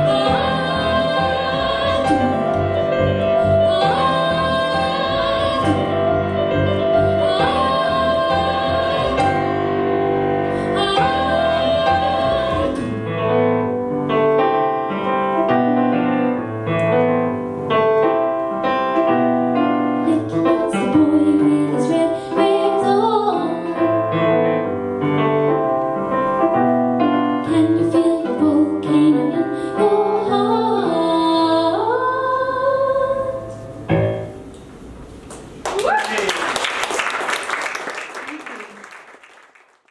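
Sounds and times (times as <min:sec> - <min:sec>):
woman singing: 0:00.0 - 0:09.5, 0:10.6 - 0:13.0, 0:20.0 - 0:24.3, 0:27.4 - 0:33.6.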